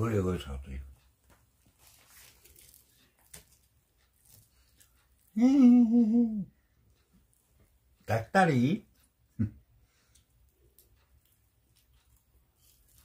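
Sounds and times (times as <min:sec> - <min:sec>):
person's drawn-out vocal sound: 0:05.4 - 0:06.6.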